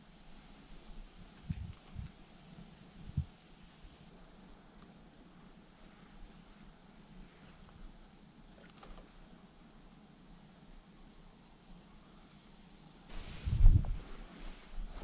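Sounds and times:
loud rustle: 13.1s - 15.0s.

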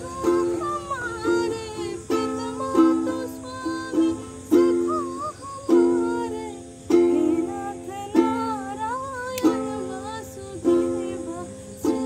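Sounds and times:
ukulele strumming: 0.0s - 12.0s
woman singing: 0.0s - 12.0s.

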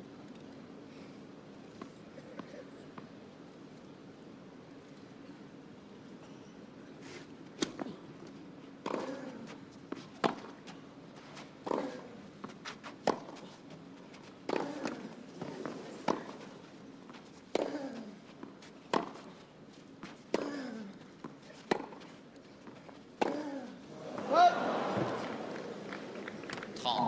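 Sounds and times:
tennis racquets hitting ball: 11.6s - 13.5s, 14.4s - 16.4s, 17.1s - 19.3s, 20.0s - 26.8s
player grunting: 23.3s - 25.2s.

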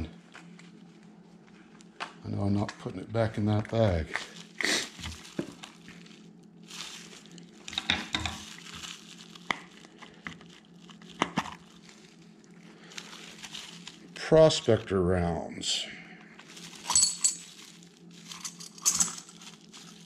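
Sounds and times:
bag crinkling and rustling: 3.7s - 15.0s, 16.3s - 20.0s.

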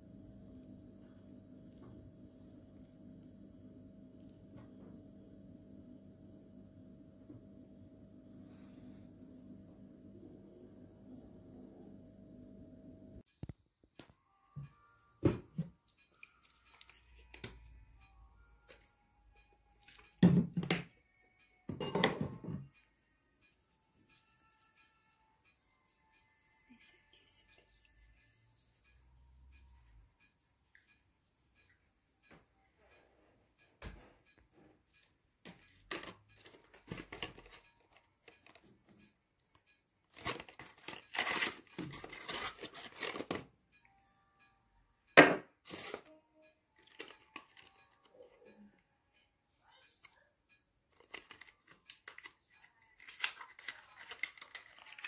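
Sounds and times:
faint music: 0.0s - 55.0s
cardboard and paper tearing: 40.2s - 43.3s, 53.0s - 55.0s
objects knocking on wooden table: 45.2s - 45.5s.

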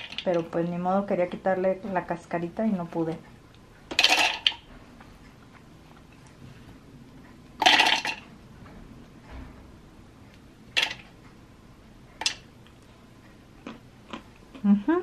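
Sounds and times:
nuts clattering into plastic bowl: 0.0s - 0.5s, 3.9s - 4.6s, 7.6s - 8.2s.

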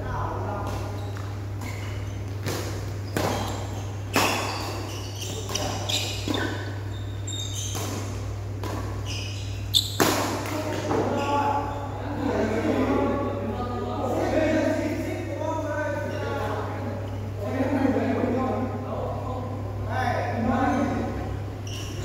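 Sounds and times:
steady low hum: 0.0s - 22.0s
shoes squeaking on court: 0.5s - 12.0s, 20.6s - 22.0s
rackets striking shuttlecock: 0.7s - 6.8s, 7.7s - 11.0s.

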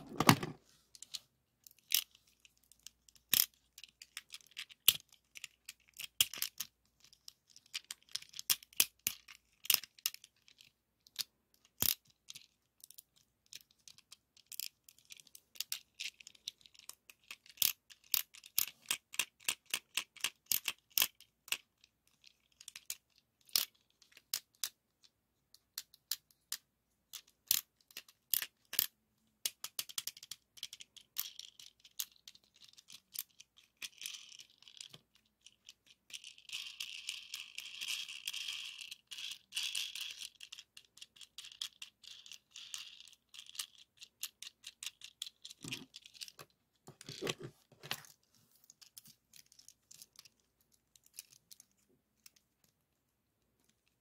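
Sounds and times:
plastic toy car clicking and rattling: 0.0s - 52.7s
soft crinkling: 45.5s - 54.0s.

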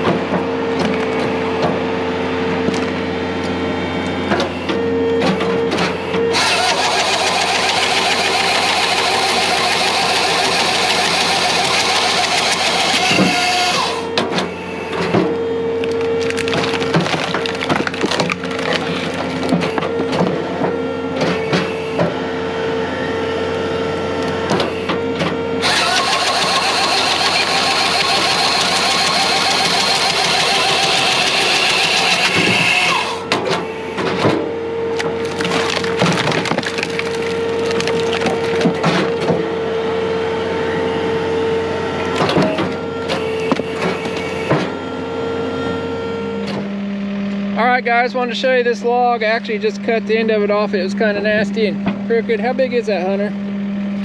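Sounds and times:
hydraulic hum: 0.0s - 54.0s
wood knocking and splitting: 15.9s - 19.9s, 34.9s - 39.4s.

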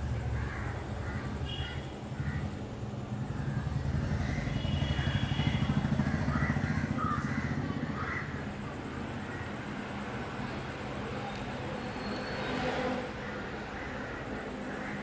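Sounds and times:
vehicle engine rumbling: 0.0s - 10.4s
faint bird calls: 3.2s - 8.5s.

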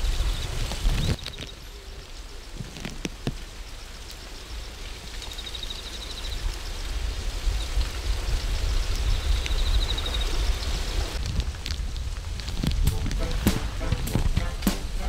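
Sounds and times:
low rumble: 11.2s - 15.0s.

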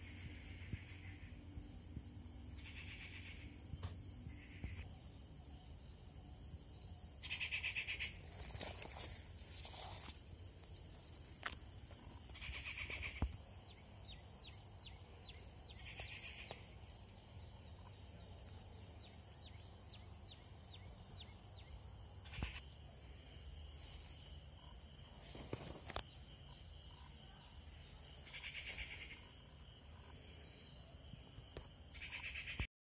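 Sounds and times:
high insect drone: 0.0s - 32.7s
buzzy calls: 12.4s - 13.2s.

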